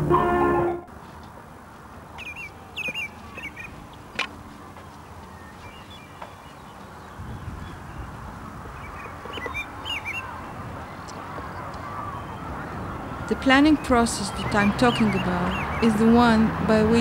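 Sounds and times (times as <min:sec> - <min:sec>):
background music: 0:00.0 - 0:00.9
bird chirping: 0:02.2 - 0:12.5, 0:13.1 - 0:16.1.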